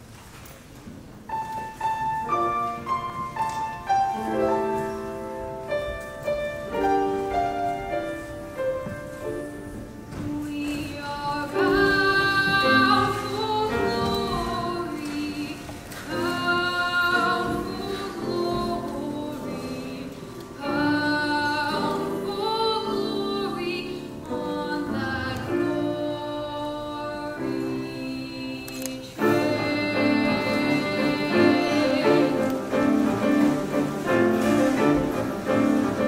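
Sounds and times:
grand piano playing: 1.1 - 36.0
children's choir singing: 10.1 - 36.0.

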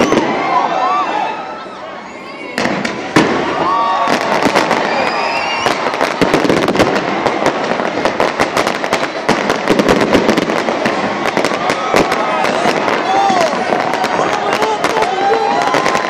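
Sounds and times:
fireworks bangs and crackling: 0.0 - 1.2, 2.0 - 16.0.

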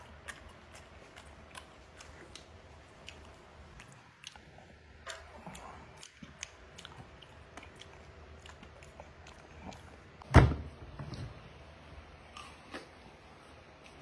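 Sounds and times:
mouth clicks and smacks: 0.0 - 10.2
person chewing fruit: 0.0 - 10.2.

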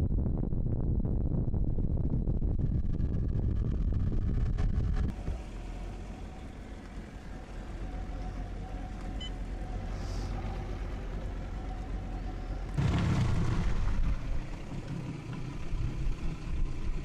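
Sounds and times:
wind: 0.0 - 17.0
outboard motor running: 9.5 - 17.0.

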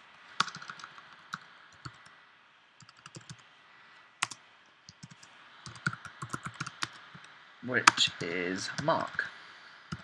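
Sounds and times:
computer keyboard typing: 0.4 - 2.0, 2.8 - 3.4, 4.2 - 7.0.

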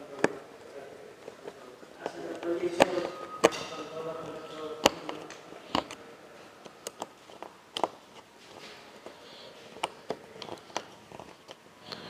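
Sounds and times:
screwdriver clicks and taps: 6.6 - 8.0.

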